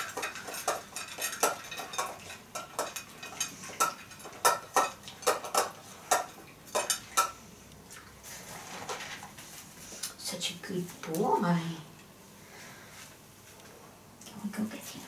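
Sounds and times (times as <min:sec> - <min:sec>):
metal bowl clinking: 0:00.0 - 0:07.4.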